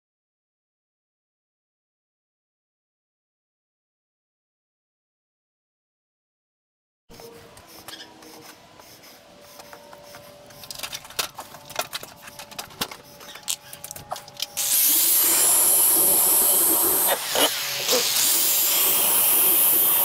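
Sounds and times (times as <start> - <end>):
power drill drilling into wood: 14.6 - 20.0.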